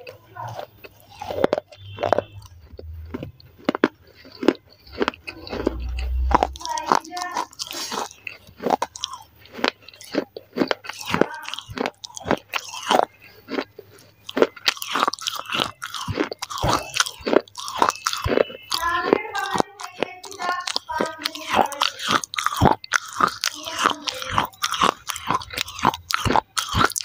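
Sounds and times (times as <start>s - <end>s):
clay crunching between teeth: 0.0s - 27.0s.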